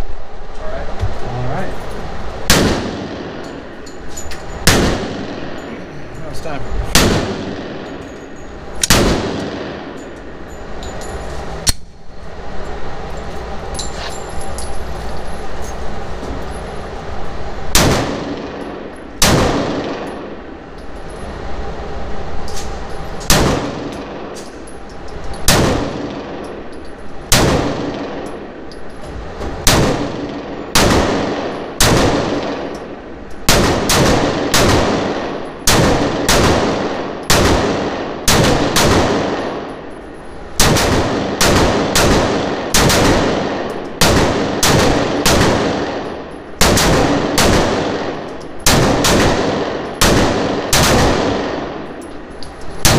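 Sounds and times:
pistol shots with ringing echo: 0:02.5 - 0:03.8, 0:04.5 - 0:10.4, 0:17.7 - 0:20.4, 0:23.3 - 0:24.4, 0:25.4 - 0:26.7, 0:27.3 - 0:28.5, 0:29.6 - 0:39.9, 0:40.6 - 0:52.9.

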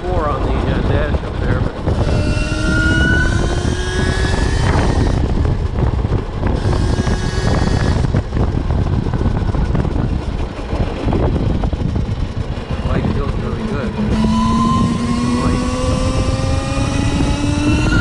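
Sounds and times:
wind rushing over microphone: 0:00.0 - 0:18.0
electric motorcycle motor whine: 0:01.9 - 0:05.7, 0:06.4 - 0:08.7, 0:13.6 - 0:18.0.

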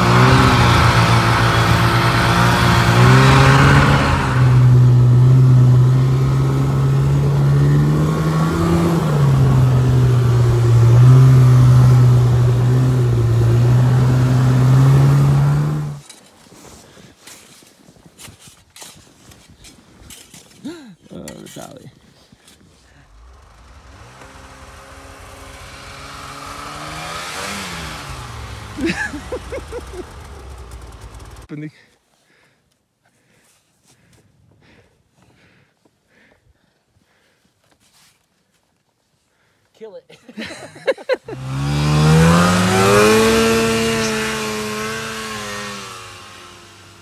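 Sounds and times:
snowmobile engine running: 0:00.0 - 0:16.0, 0:22.9 - 0:31.5, 0:41.3 - 0:47.0.

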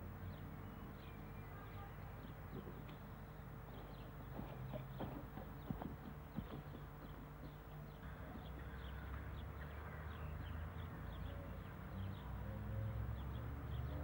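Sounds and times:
small birds chirping: 0:00.1 - 0:14.0.

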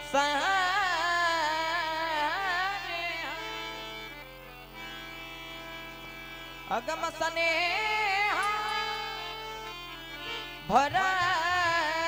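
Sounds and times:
boy singing wordless wavering notes: 0:00.0 - 0:04.2, 0:06.7 - 0:10.0, 0:10.6 - 0:12.0
held organ notes: 0:02.6 - 0:12.0.

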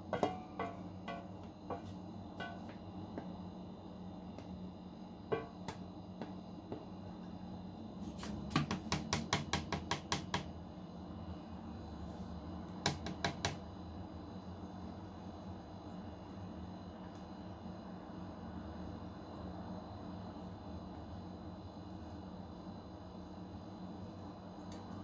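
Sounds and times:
utensil tapping on mixing bowl: 0:00.1 - 0:03.3, 0:05.3 - 0:06.8.

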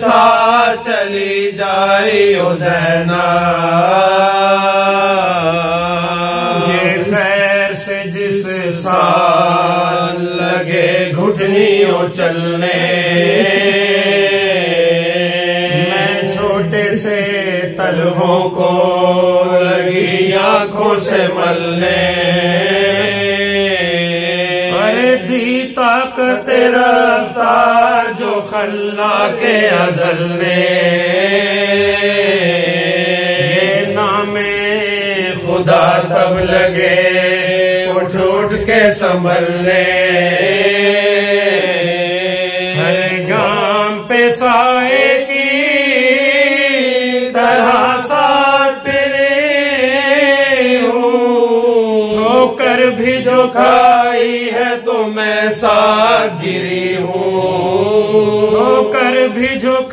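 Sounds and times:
men chanting: 0:00.0 - 0:59.9
lead voice holding long notes: 0:05.4 - 0:07.3, 0:13.1 - 0:16.7, 0:21.8 - 0:25.1, 0:33.3 - 0:35.6.

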